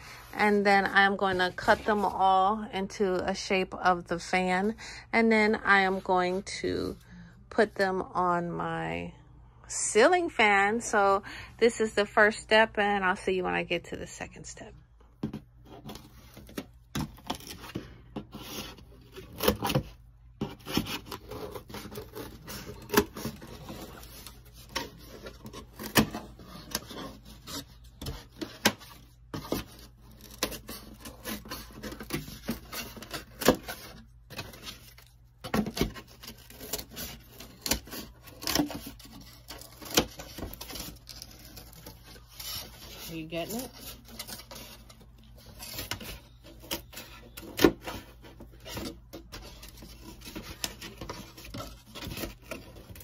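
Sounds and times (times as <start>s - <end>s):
scissors snipping foam board: 18.4s - 53.0s.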